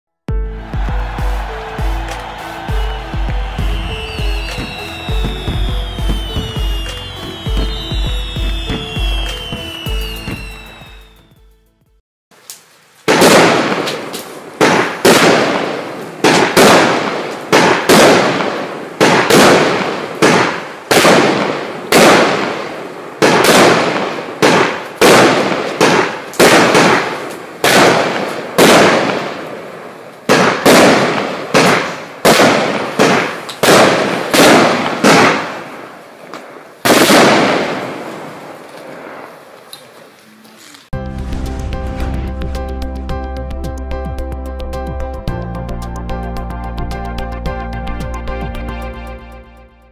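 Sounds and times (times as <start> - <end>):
firework cake sharp bangs: 2.1 - 10.6, 13.1 - 35.9, 36.8 - 39.3.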